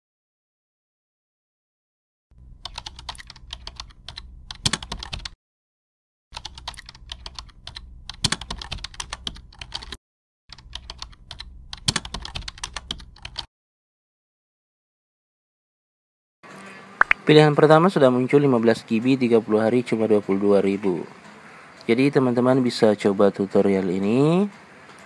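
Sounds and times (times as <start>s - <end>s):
keyboard typing: 2.6s - 5.4s, 6.4s - 13.5s.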